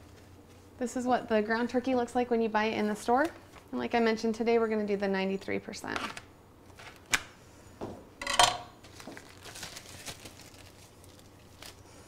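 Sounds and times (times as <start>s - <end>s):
plastic packaging crinkling: 8.8s - 12.0s.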